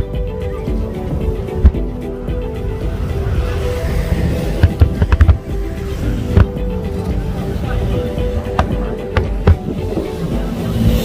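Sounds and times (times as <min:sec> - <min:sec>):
low rumble: 0:00.0 - 0:11.0
music playing: 0:00.0 - 0:11.0
loud firework bangs: 0:04.1 - 0:06.7.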